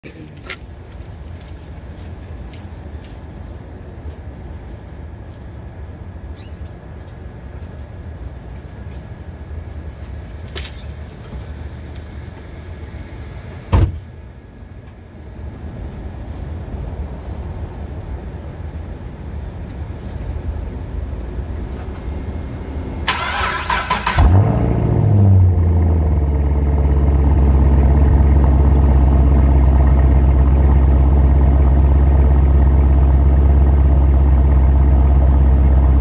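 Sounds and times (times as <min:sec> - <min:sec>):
car engine revving and idling: 0:21.8 - 0:36.0.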